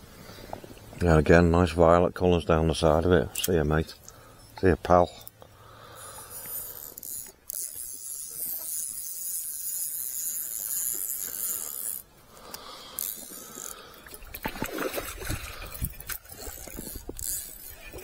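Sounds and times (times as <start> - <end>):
fish splashing in water: 13.2 - 16.9.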